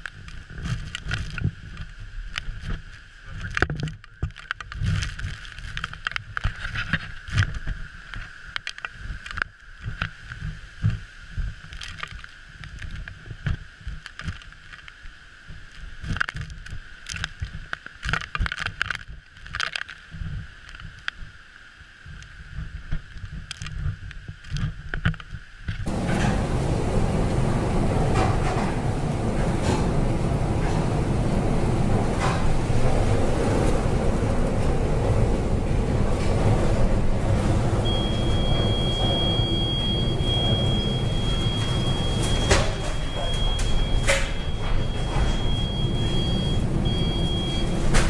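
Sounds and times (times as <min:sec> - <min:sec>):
wind buffeting microphone: 0:25.8 - 0:48.0
heavy seas breaking: 0:25.9 - 0:48.0.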